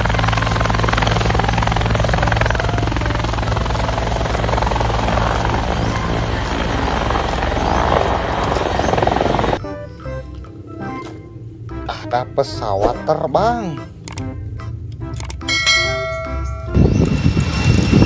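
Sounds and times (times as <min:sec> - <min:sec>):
helicopter rotor chopping: 0:00.0 - 0:09.6, 0:16.7 - 0:18.0.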